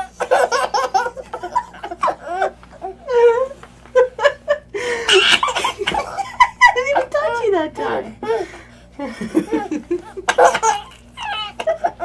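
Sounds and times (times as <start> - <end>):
baby laughing: 0.0 - 3.1, 5.1 - 7.1, 9.4 - 12.0.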